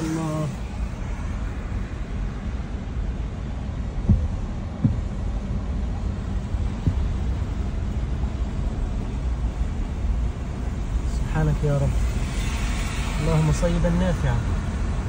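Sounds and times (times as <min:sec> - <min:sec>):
car driving on flooded road: 0:00.0 - 0:15.0
dull thumps: 0:04.0 - 0:05.7, 0:06.6 - 0:07.4.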